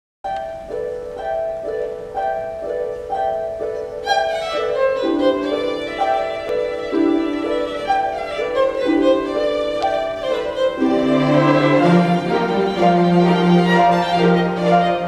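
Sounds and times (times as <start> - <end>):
string orchestra playing: 4.0 - 15.0.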